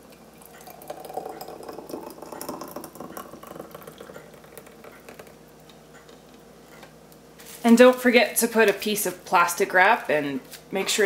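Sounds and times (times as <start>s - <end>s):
thick liquid pouring: 0.4s - 5.4s.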